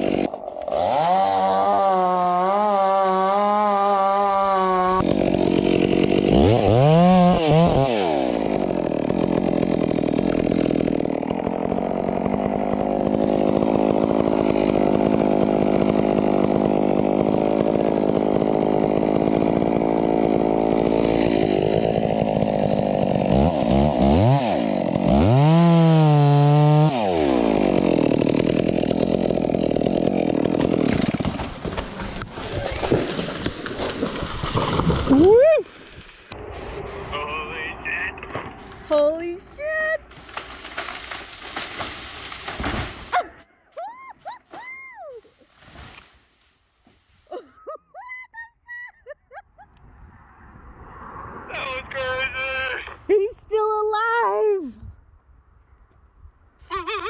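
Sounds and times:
chainsaw cutting tree trunk: 0.0 - 36.8, 40.0 - 43.4, 44.2 - 46.4.

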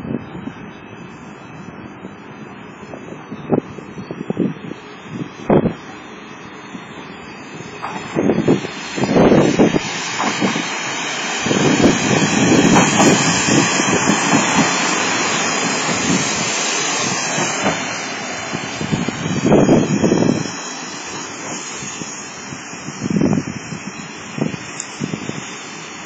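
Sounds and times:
wind buffeting microphone: 0.0 - 5.9, 6.6 - 26.0
train wheels rumbling on rail: 6.9 - 26.0.

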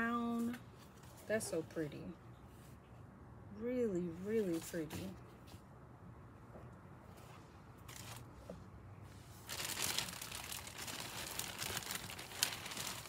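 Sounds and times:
packaging crinkling: 7.8 - 8.3, 9.4 - 13.0.

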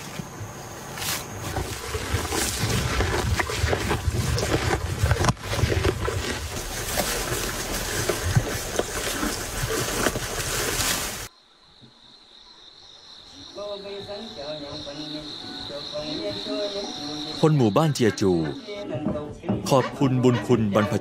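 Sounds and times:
faint insects trilling: 0.0 - 18.9
cow tearing and chewing grass: 0.9 - 11.3.

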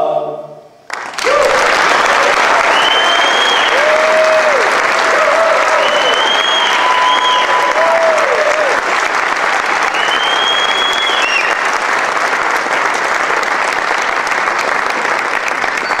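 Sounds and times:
audience applauding: 0.9 - 16.0
high-pitched whistles: 2.7 - 3.9, 5.7 - 7.8, 9.9 - 11.7, 15.8 - 16.0.

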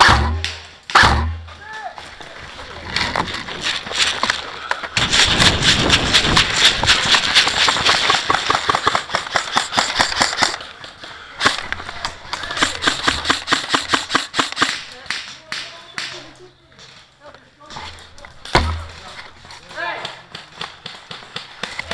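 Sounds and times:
airsoft rifle cracking: 3.4 - 10.7, 11.4 - 16.2.

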